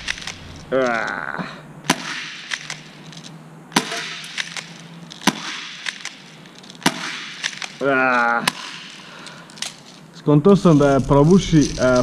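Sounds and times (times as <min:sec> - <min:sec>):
airsoft pistol shots: 0:00.0 - 0:00.6, 0:01.8 - 0:02.9, 0:03.7 - 0:07.8, 0:08.4 - 0:09.1.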